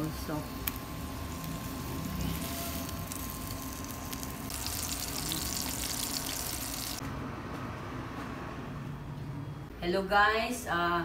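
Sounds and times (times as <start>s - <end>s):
burger patties sizzling: 0.0s - 7.0s.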